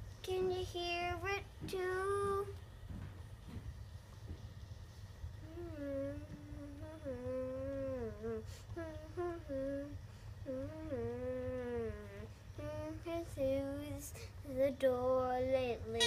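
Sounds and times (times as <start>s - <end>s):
boy singing wordless melody: 0.2s - 2.6s, 5.4s - 16.0s.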